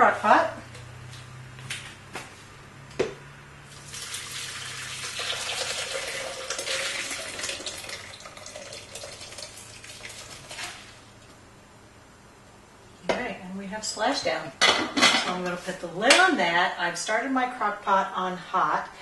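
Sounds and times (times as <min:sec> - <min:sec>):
soup splashing as it is poured: 0:03.7 - 0:10.9.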